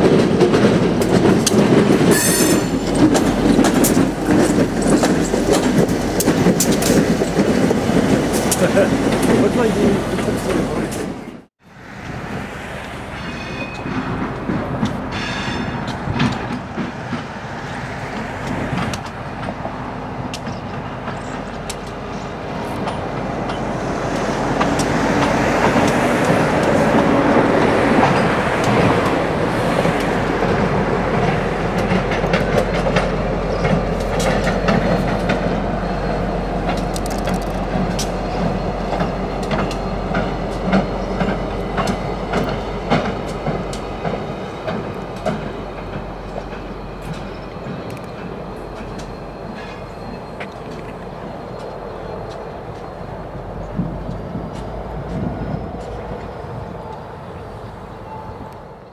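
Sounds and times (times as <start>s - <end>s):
wheels clicking over rail joints: 0.0s - 11.2s, 12.0s - 58.7s
diesel locomotive engine: 0.0s - 58.9s.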